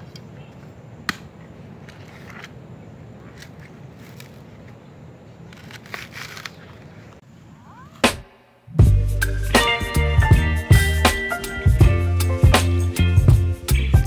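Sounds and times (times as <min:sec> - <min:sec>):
coconut husk tearing with machete: 0:05.5 - 0:06.9.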